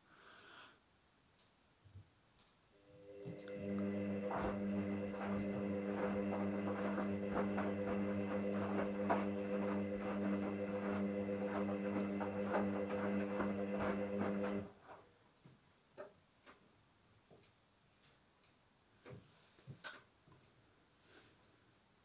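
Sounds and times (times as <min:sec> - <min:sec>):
washing machine motor humming: 0:02.8 - 0:14.8.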